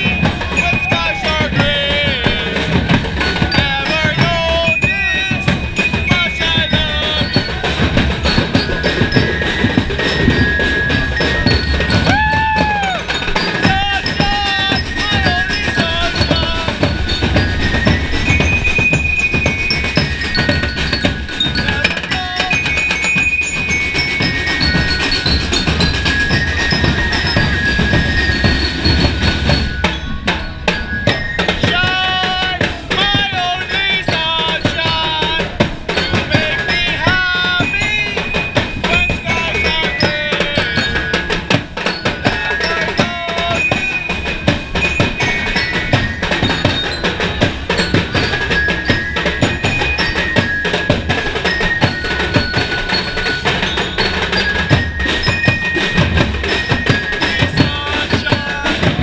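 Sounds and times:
crowd shouting and chanting: 0:00.0 - 0:18.0, 0:31.4 - 0:41.3, 0:56.9 - 0:59.0
fast street drumming: 0:00.0 - 0:59.0.

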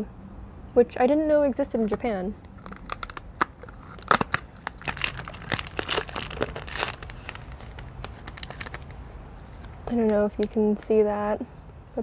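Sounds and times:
candy wrapper crinkling and tearing: 0:01.8 - 0:09.0.

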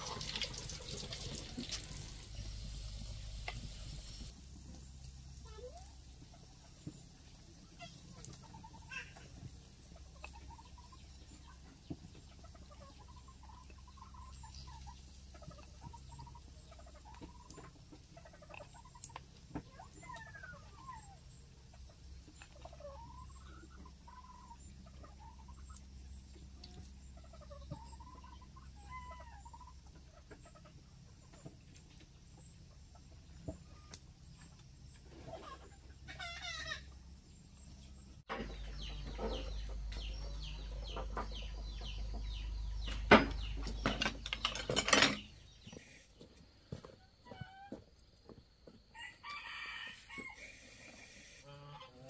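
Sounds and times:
chickens clucking: 0:00.0 - 0:52.0.

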